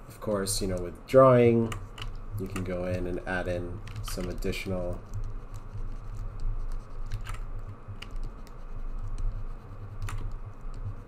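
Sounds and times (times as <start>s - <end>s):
low steady hum: 0.0s - 11.0s
stylus scratching on tablet: 1.6s - 11.0s
sharp clicks: 10.0s - 10.8s.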